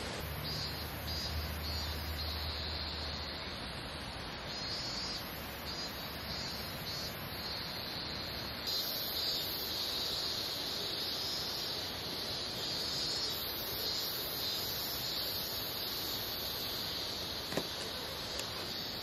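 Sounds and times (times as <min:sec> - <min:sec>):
cicadas buzzing: 0:00.0 - 0:19.0
steady background hiss: 0:00.0 - 0:19.0.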